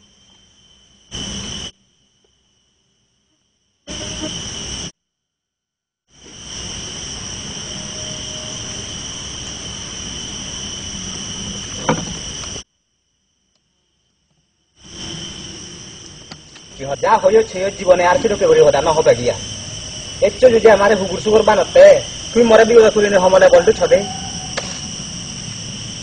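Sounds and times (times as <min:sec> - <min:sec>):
high-pitched insect drone: 0:00.0 - 0:02.7, 0:03.8 - 0:05.0, 0:06.1 - 0:12.7, 0:14.6 - 0:26.0.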